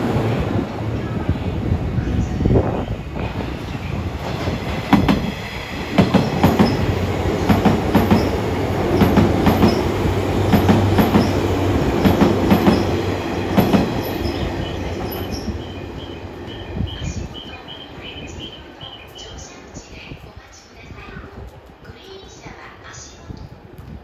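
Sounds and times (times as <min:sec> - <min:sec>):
train wheels clattering over rail joints: 0:04.2 - 0:15.4.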